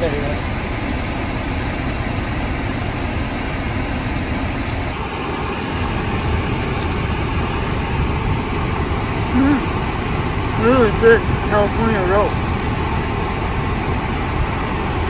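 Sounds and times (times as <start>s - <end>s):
car cabin rumble and rushing: 0.0s - 15.0s
faint crackles: 4.0s - 7.4s, 11.9s - 15.0s.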